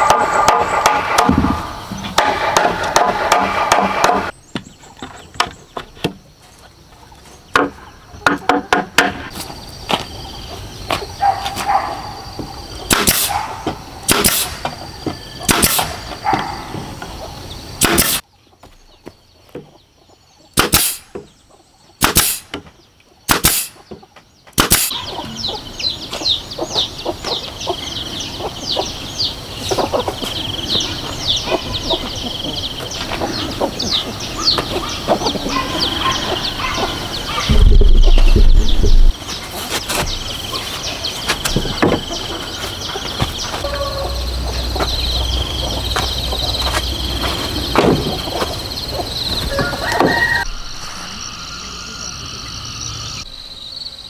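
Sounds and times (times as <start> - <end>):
birds chirping: 0.0 - 54.0
nail gun shots: 12.9 - 13.3, 14.1 - 14.7, 15.5 - 16.0, 17.8 - 18.2, 20.6 - 21.2, 22.0 - 22.6, 23.3 - 23.8, 24.6 - 25.0.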